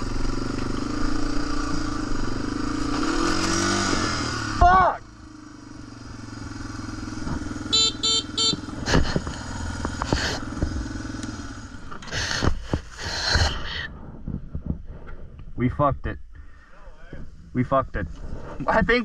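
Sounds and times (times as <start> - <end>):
motorcycle engine running: 0.0 - 15.4
short beeps: 7.7 - 8.7.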